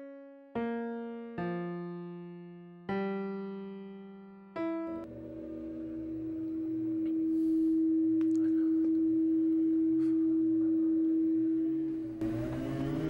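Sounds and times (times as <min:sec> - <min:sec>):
sustained pure tone drone: 0:05.0 - 0:13.0.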